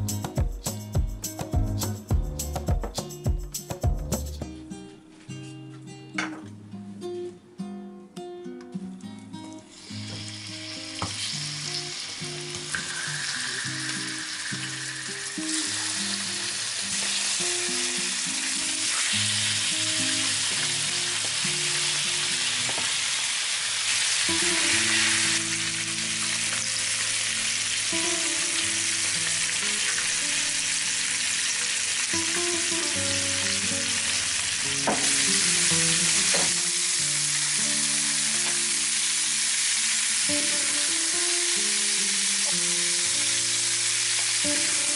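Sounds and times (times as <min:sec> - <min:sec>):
chicken sizzling in oil: 0:09.7 - 0:44.9
soft background music: 0:24.2 - 0:44.9.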